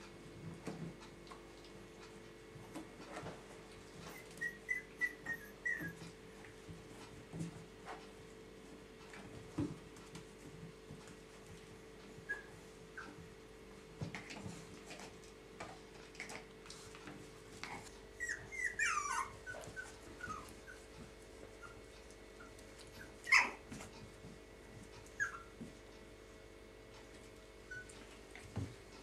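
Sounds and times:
puppies squeaking and whimpering: 4.0s - 6.1s, 12.3s - 13.2s, 18.2s - 20.9s, 22.4s - 23.6s, 25.2s - 25.5s, 27.7s - 28.0s
puppy high squeals: 4.1s - 6.0s, 18.2s - 20.5s, 23.0s - 23.6s, 25.2s - 25.5s.

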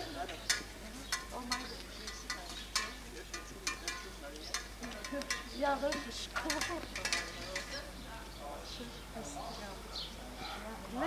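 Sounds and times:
walking cane taps: 0.2s - 8.4s.

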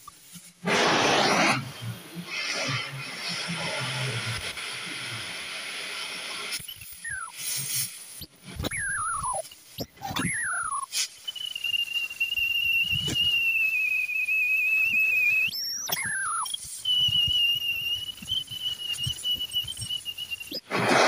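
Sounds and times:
cutting torch hissing jet: 0.2s - 9.8s, 10.6s - 21.0s
whines dropping in pitch: 6.6s - 7.5s, 8.5s - 21.0s.

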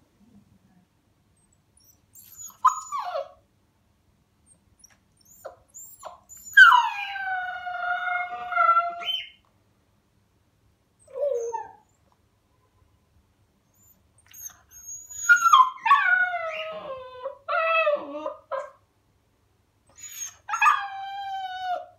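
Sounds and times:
puppy yelp: 1.8s - 3.4s, 4.8s - 9.4s, 13.7s - 18.8s, 19.9s - 21.9s
puppy howling: 5.8s - 9.4s, 15.2s - 18.7s, 20.0s - 21.9s.

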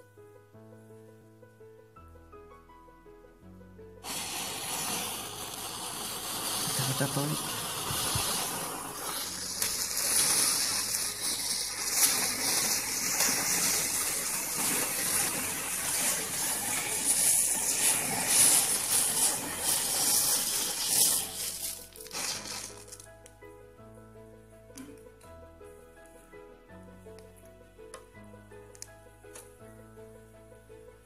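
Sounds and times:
matches burning with fizzing hiss: 4.0s - 23.3s
burning matches crackling: 4.0s - 23.4s.

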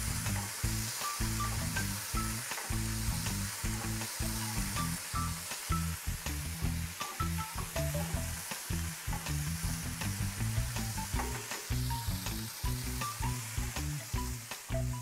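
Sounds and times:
background music: 0.0s - 15.0s
food sizzling in a frying pan: 0.0s - 15.0s.

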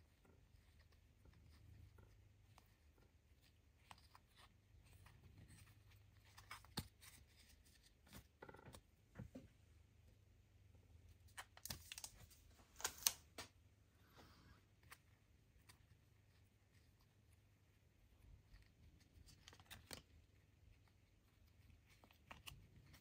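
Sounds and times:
cards sliding and flicking: 11.3s - 13.5s.

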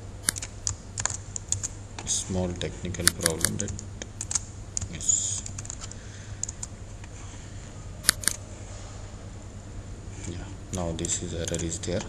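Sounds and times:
low electrical hum: 0.0s - 12.0s
computer keyboard clicks: 0.2s - 1.7s, 3.0s - 6.7s, 8.0s - 8.4s.

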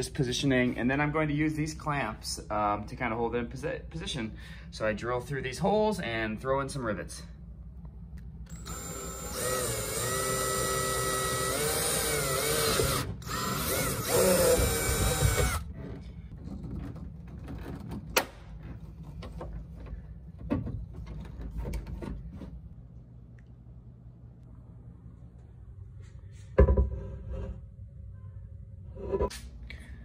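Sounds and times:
cordless drill whining: 8.5s - 15.6s.

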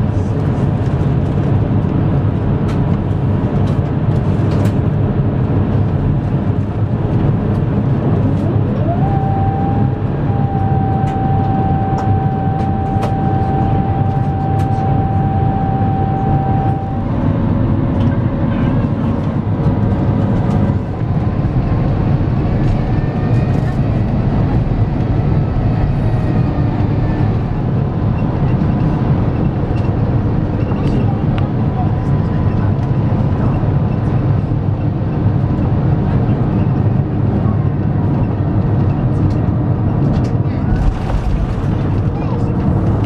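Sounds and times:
airplane cabin airflow and engine hum: 0.0s - 43.0s
rising whine: 8.1s - 29.9s.

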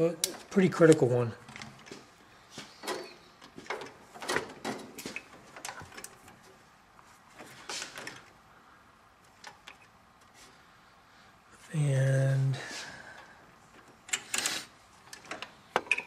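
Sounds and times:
wiring clicks and rustles: 0.0s - 8.4s, 9.1s - 10.5s, 13.1s - 16.0s.

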